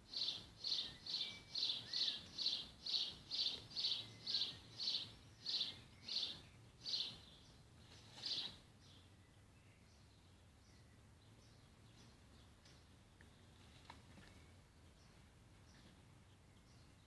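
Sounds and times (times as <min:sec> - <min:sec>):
bird calling: 0:00.2 - 0:07.2.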